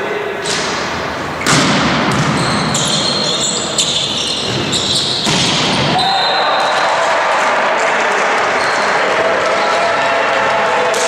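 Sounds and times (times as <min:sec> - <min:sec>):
sports hall noise: 0:00.0 - 0:11.0
shoe squeaks: 0:01.4 - 0:06.8
players' voices: 0:02.2 - 0:11.0
hand slapping volleyball: 0:05.2 - 0:06.0.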